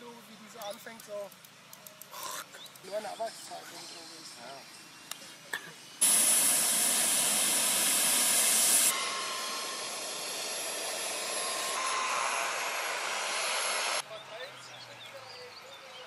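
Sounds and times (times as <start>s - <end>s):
model jet turbine whine: 6.0s - 14.0s.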